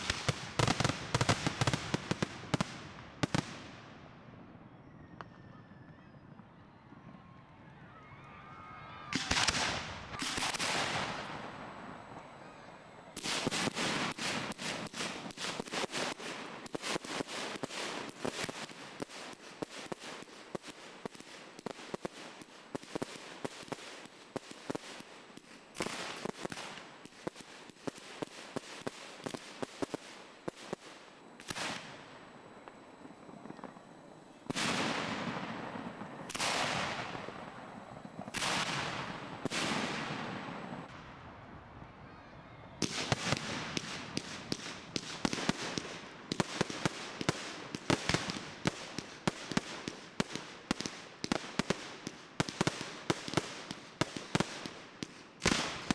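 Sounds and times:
heavy firework bangs: 0:33.4 - 0:41.0.

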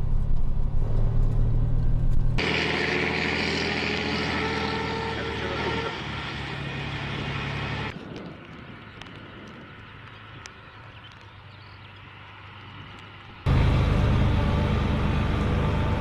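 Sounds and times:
diesel truck engine running: 0:00.0 - 0:07.9, 0:13.4 - 0:16.0.

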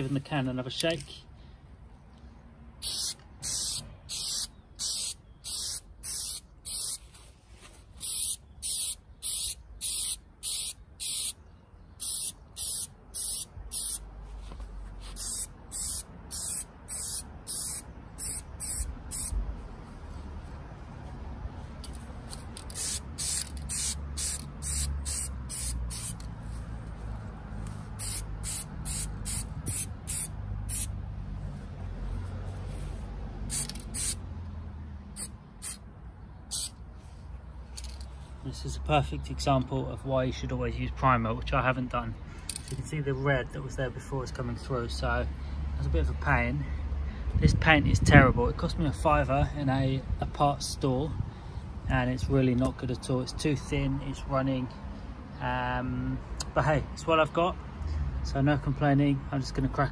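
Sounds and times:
spray can hissing: 0:02.8 - 0:07.0, 0:08.0 - 0:11.4, 0:12.0 - 0:14.0, 0:15.1 - 0:19.4, 0:22.6 - 0:26.2, 0:28.0 - 0:30.9, 0:33.5 - 0:34.2, 0:35.2 - 0:35.8, 0:36.5 - 0:36.8.

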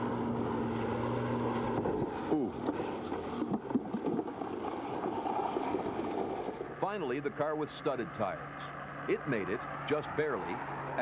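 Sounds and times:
car engine humming: 0:00.0 - 0:11.0
tires sliding on ice: 0:01.0 - 0:06.9.

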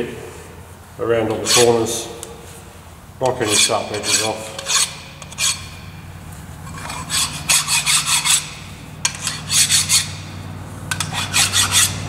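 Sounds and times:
steady low hum: 0:00.0 - 0:12.0
hand file rasping on metal: 0:01.3 - 0:01.8, 0:03.2 - 0:05.8, 0:06.6 - 0:10.2, 0:10.9 - 0:12.0.

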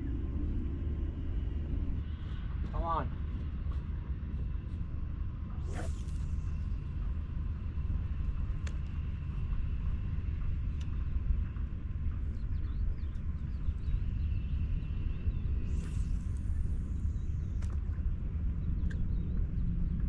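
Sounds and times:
low rumbling background noise: 0:00.0 - 0:20.0
faint clicks: 0:08.2 - 0:09.0, 0:18.8 - 0:19.2.

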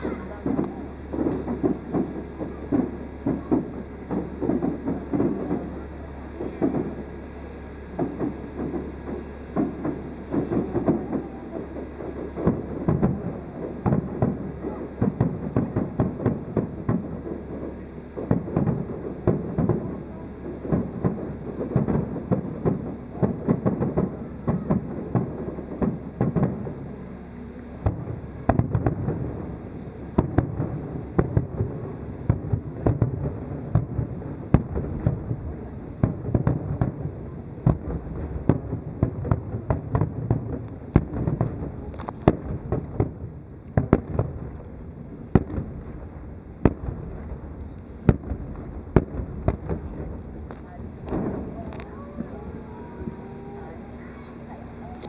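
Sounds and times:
distant fireworks booming and crackling: 0:00.0 - 0:55.0.

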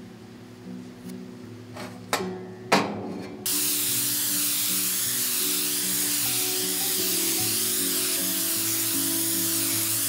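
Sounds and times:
spray gun hissing: 0:03.5 - 0:10.0.

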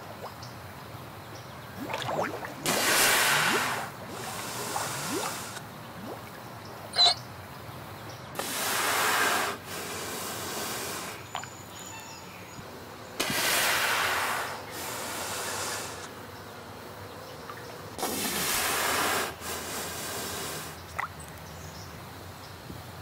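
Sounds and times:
steady underwater hiss: 0:00.0 - 0:23.0
manatee hissing rushes: 0:01.8 - 0:06.2, 0:08.4 - 0:11.5, 0:13.1 - 0:16.3, 0:17.9 - 0:21.1
faint rising squeak: 0:06.9 - 0:07.2.

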